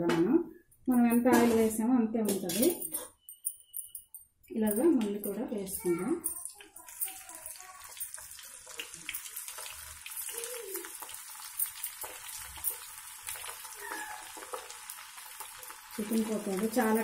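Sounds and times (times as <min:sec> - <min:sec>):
food deep-frying in hot oil: 0:05.0 - 0:17.0
oil sizzling and crackling: 0:05.0 - 0:17.0.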